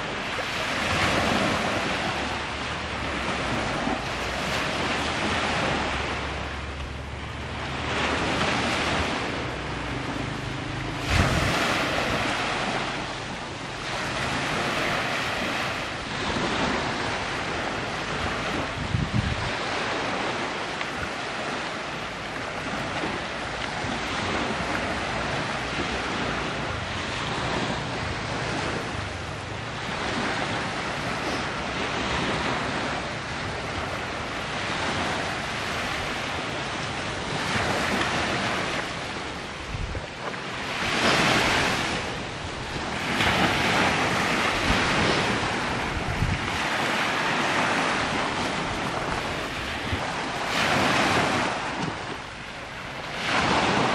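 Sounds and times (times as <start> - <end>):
sea waves washing onto shore: 0.0 - 53.9
wind buffeting microphone: 0.0 - 53.9.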